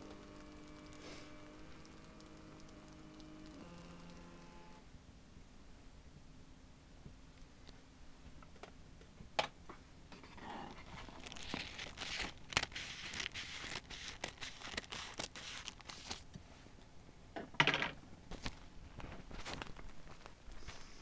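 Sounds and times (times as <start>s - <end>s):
paper rustling and crinkling: 10.3s - 16.3s, 18.3s - 20.9s
paper crackling: 10.7s - 16.3s.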